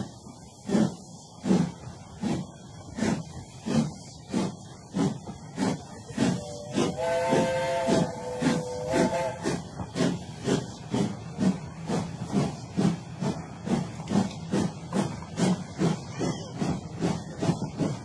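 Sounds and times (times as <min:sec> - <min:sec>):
steam locomotive chuffing: 0:00.0 - 0:18.0
chord steam whistle: 0:06.4 - 0:09.6.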